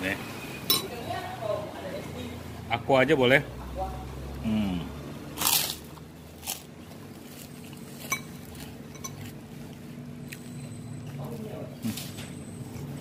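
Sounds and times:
steady low hum: 0:00.0 - 0:13.0
cutlery clinking on ceramic bowl: 0:08.1 - 0:09.3.

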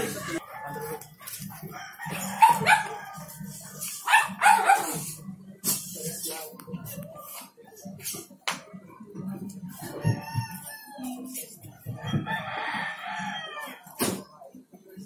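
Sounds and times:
rooster crowing: 0:00.0 - 0:01.0, 0:01.6 - 0:03.4, 0:11.9 - 0:13.9.

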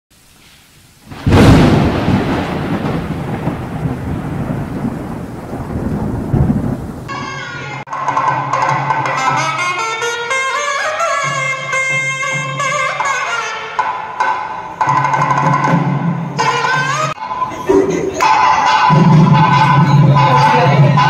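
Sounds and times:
thunder-like crash and rumble: 0:01.1 - 0:07.2
melodic music: 0:16.4 - 0:21.0.

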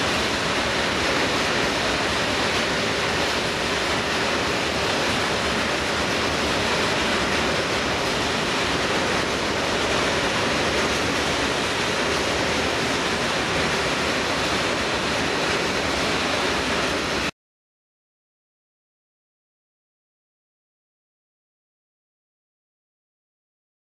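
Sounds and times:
freight train wheels on rail: 0:00.0 - 0:17.3.

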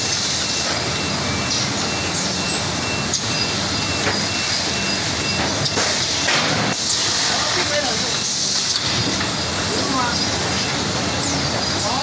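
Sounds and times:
packing machine mechanical noise: 0:00.0 - 0:12.0.

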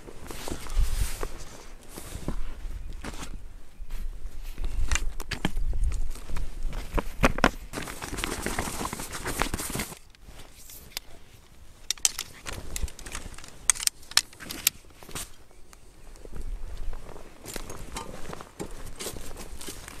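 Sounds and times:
tent poles clicking: 0:04.5 - 0:15.8, 0:16.4 - 0:20.0.

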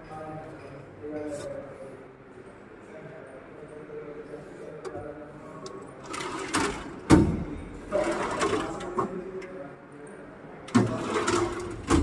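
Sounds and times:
metal drawers sliding and knocking: 0:10.7 - 0:12.0.

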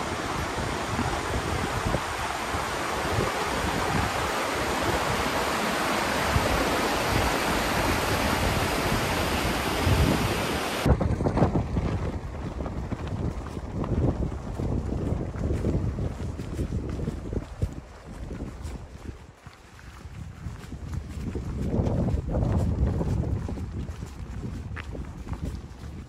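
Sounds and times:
river rushing over rocks: 0:00.0 - 0:10.9
wind buffeting microphone: 0:00.0 - 0:26.0.

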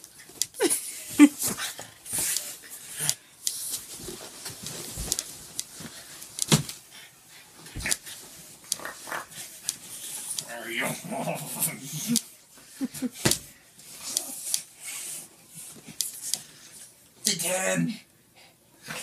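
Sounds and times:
blankets rustling: 0:03.6 - 0:10.2.

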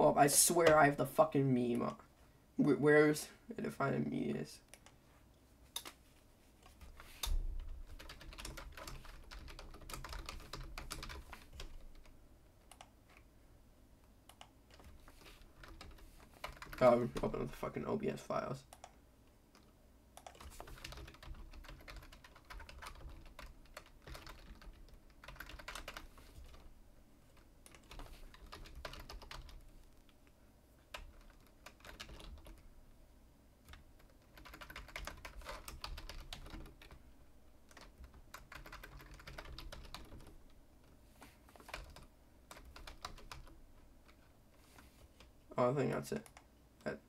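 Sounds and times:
faint keyboard typing: 0:04.6 - 0:05.0, 0:05.7 - 0:13.3, 0:14.0 - 0:17.8, 0:18.6 - 0:32.7, 0:33.6 - 0:37.0, 0:37.6 - 0:47.0.

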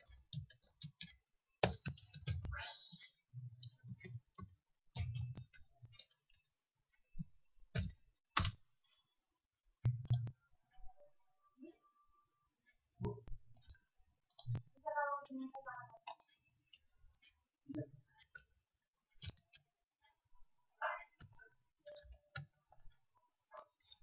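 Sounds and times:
computer mouse clicking: 0:16.0 - 0:17.4, 0:19.2 - 0:20.2.

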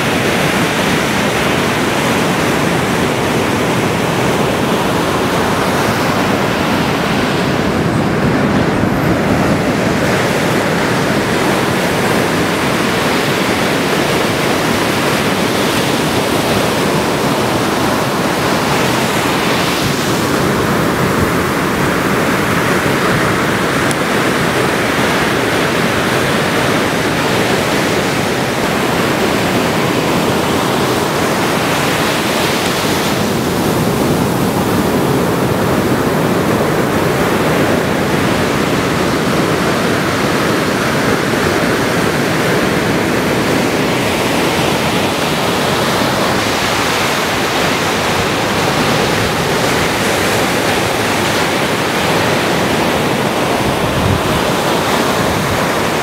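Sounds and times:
ocean waves breaking: 0:00.0 - 0:56.0.

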